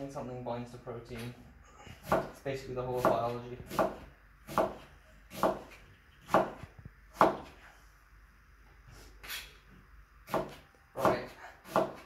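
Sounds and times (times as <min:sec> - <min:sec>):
knife chopping on cutting board: 0:02.0 - 0:07.6, 0:10.2 - 0:12.0.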